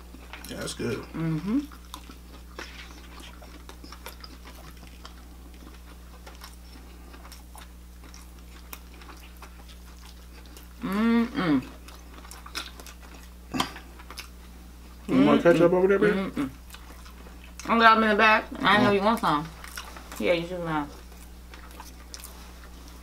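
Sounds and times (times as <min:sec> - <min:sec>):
low electrical hum: 0:00.0 - 0:23.0
chewing and mouth clicks: 0:00.1 - 0:10.9, 0:11.6 - 0:15.1, 0:16.5 - 0:17.7, 0:18.7 - 0:23.0
person humming: 0:01.2 - 0:01.6, 0:10.8 - 0:11.7.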